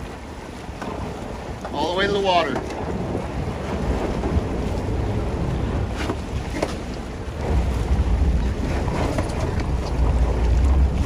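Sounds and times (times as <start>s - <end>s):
water washing around boat: 0.0s - 11.0s
wind buffeting microphone: 0.0s - 11.0s
steady low rumble: 7.0s - 11.0s.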